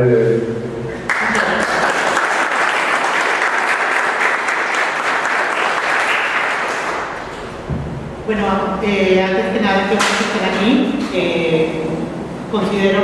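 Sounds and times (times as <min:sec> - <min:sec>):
audience applauding: 0:01.0 - 0:07.4.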